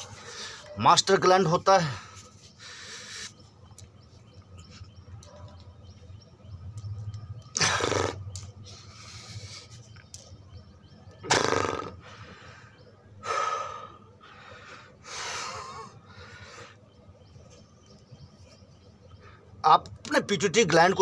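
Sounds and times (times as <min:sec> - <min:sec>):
man breathing forcefully: 0:12.0 - 0:16.8.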